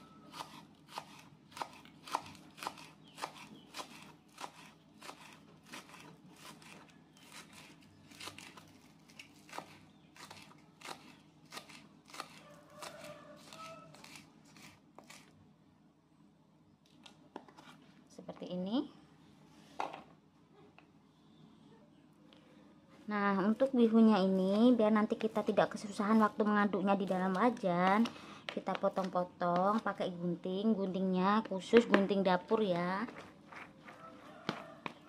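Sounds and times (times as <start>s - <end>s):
knife chopping on wooden board: 0.3s - 8.5s, 9.4s - 15.2s.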